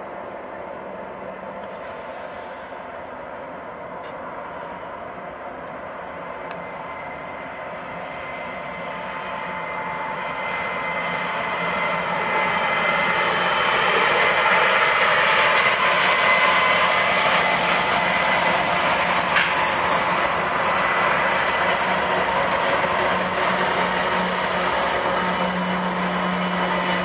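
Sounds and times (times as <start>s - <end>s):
model trains rolling: 8.4s - 27.0s.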